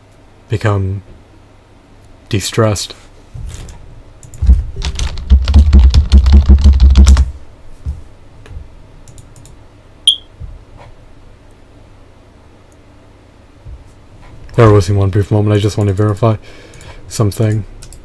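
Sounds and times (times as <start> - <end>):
fast typing on keyboard: 4.2 - 7.3.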